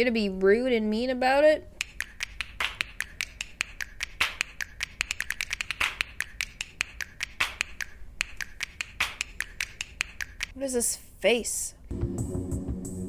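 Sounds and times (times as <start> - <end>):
rapid sharp clicks: 1.8 - 10.6.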